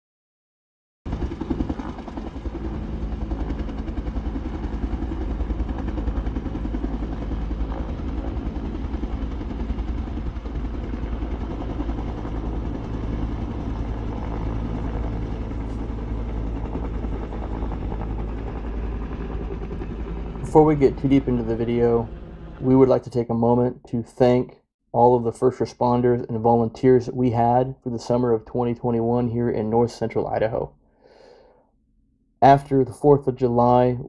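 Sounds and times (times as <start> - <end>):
helicopter rotor beating: 1.1 - 24.4.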